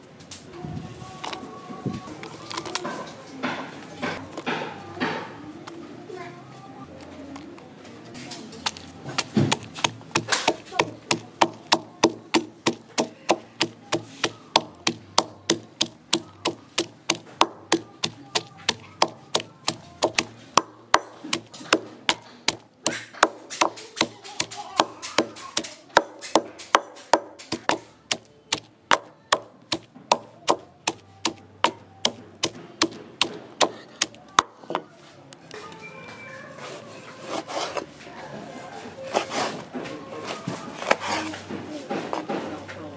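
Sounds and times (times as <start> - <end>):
pestle pounding in wooden mortar: 8.7 - 34.7.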